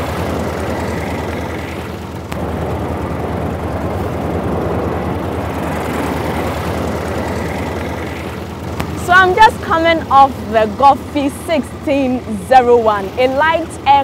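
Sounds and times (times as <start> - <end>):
aircraft engine running: 0.0 - 14.0.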